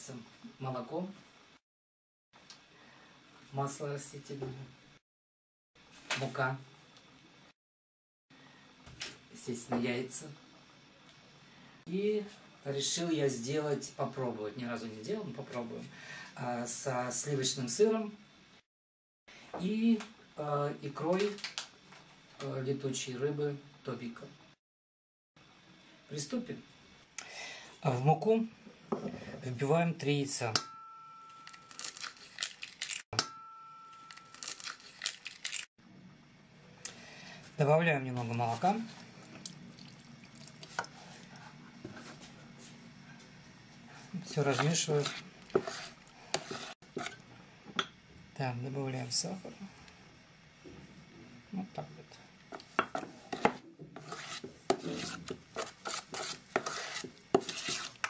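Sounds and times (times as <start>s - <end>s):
eggshells crackling: 31.7s - 33.1s, 34.2s - 35.7s
metal spoon scraping steel pot: 44.4s - 47.2s, 53.3s - 58.0s.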